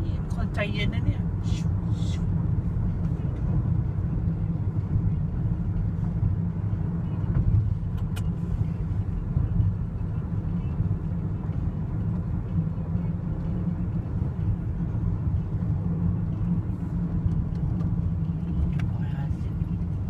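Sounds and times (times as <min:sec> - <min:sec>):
car cabin road rumble: 0:00.0 - 0:20.0.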